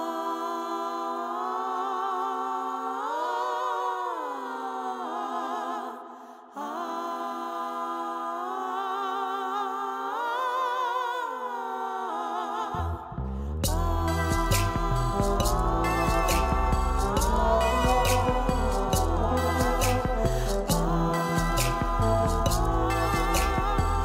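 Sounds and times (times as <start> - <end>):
person singing with vibrato: 0.0 - 24.0.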